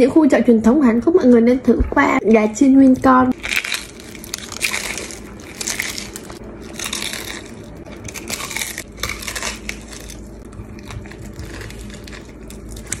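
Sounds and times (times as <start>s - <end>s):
crispy food crunching: 3.0s - 13.0s
soft chewing: 3.3s - 13.0s.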